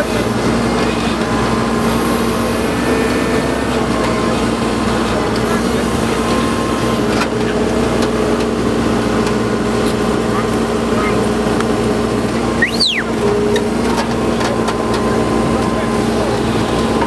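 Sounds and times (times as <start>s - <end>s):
backhoe diesel engine humming: 0.0s - 17.0s
crowd chatter: 0.0s - 17.0s.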